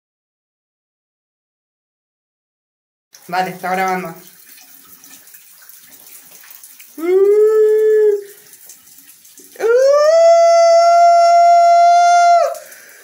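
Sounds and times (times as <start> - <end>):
long howling cries: 7.0 - 8.4, 9.6 - 12.7.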